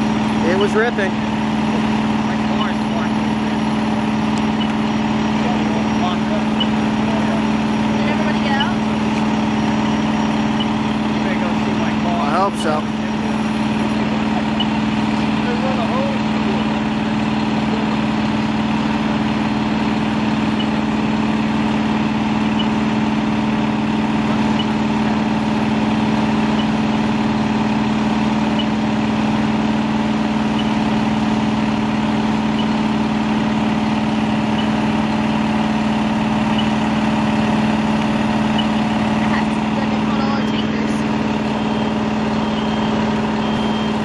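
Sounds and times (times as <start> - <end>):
fire engine diesel engine running: 0.0 - 44.0.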